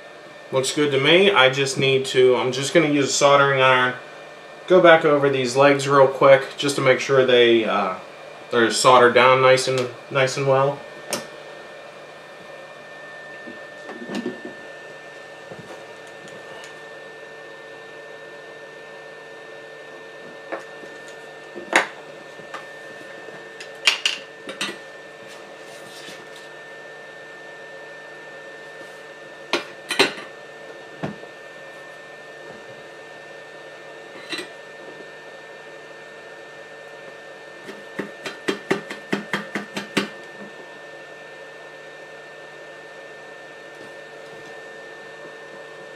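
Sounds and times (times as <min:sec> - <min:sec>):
electrical hum with high whine: 0:00.0 - 0:45.9.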